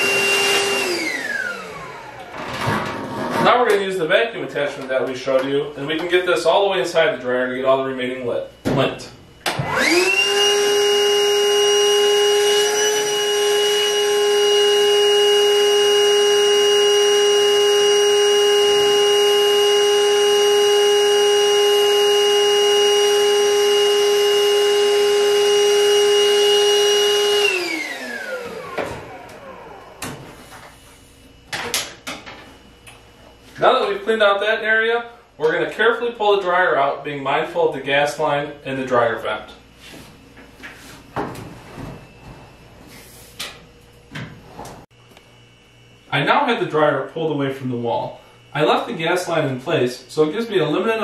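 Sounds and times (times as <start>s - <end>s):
vacuum motor winding down: 0.0s - 2.7s, 9.5s - 30.2s
shop vacuum running: 0.0s - 51.0s.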